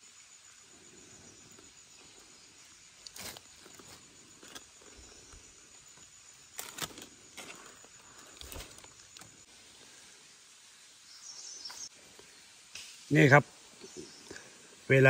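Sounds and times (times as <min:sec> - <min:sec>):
high insect drone: 0:00.0 - 0:15.0
crackles: 0:03.0 - 0:10.2.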